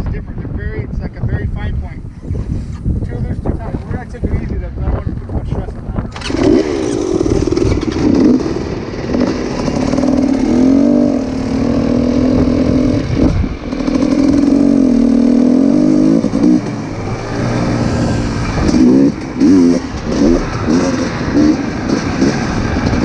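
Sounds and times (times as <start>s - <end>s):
dirt bike engine revving: 6.1s - 23.0s.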